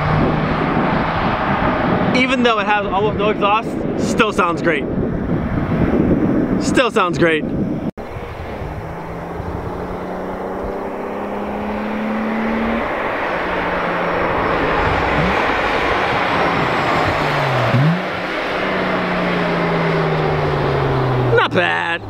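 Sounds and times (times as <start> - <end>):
car engine revving: 0.0 - 3.0, 7.7 - 22.0.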